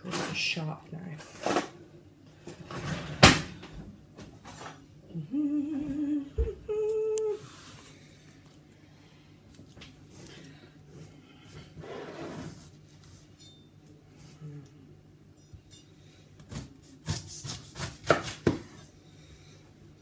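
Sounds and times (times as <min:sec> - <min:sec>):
knife cutting and knocking: 0:16.5 - 0:18.6.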